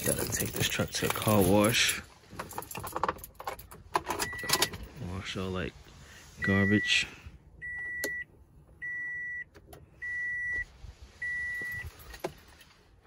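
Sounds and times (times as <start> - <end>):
high warning chime beeps: 6.4 - 7.0, 11.2 - 11.9.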